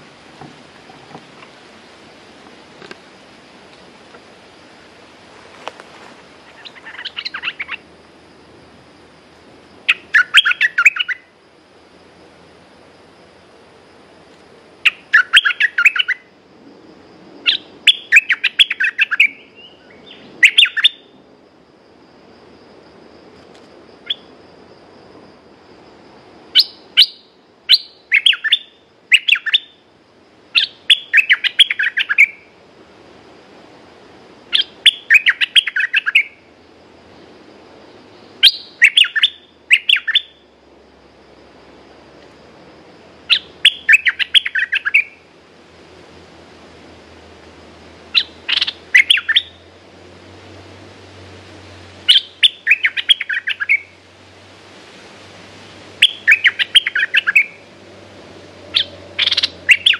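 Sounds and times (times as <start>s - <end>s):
bulbul singing bubbly chirps: 6.4s - 7.9s, 9.9s - 11.3s, 14.8s - 16.2s, 17.4s - 21.1s, 26.6s - 29.8s, 30.5s - 32.5s, 34.5s - 36.4s, 38.4s - 40.4s, 43.3s - 45.2s, 48.1s - 49.6s, 52.1s - 54.0s, 56.0s - 57.6s, 58.7s - 59.9s.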